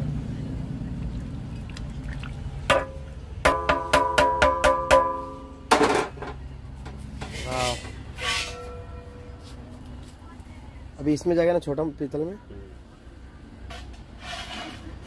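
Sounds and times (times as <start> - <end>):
metal ladle knocking on brass pot: 2.7 - 6.0
ladle scraping pot: 7.2 - 9.0.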